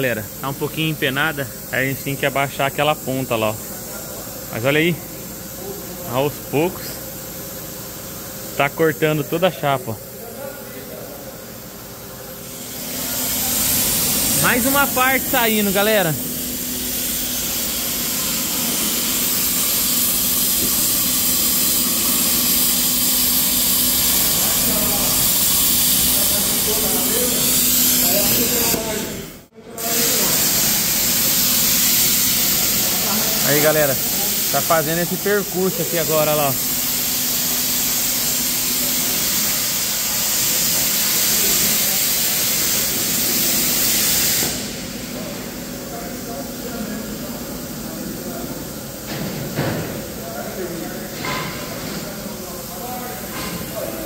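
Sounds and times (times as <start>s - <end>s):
plasma torch hissing: 0.0s - 7.0s, 12.4s - 44.9s.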